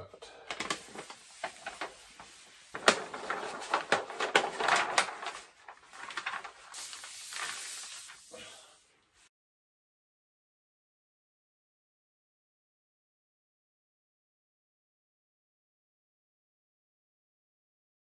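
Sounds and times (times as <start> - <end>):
paper crackling and rustling: 0.5 - 8.3
paper sliding rustle: 0.5 - 8.4.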